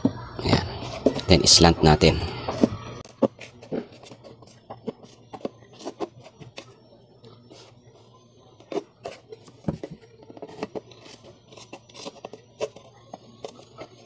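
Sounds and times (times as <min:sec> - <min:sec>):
scissors cutting plastic: 0:08.6 - 0:14.0.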